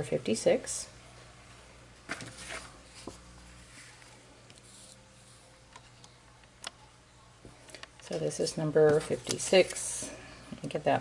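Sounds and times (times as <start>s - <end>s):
paper rustling and sliding: 2.1s - 5.0s.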